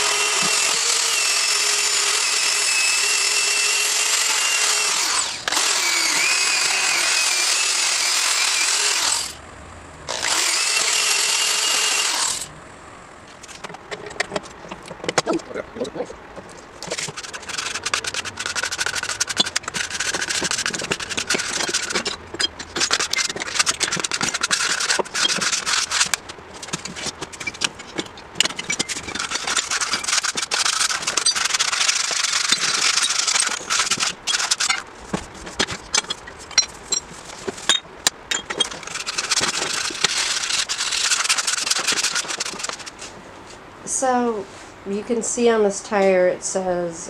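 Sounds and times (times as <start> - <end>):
hand file rasping: 0.0 - 9.3, 16.8 - 37.7, 38.5 - 43.1.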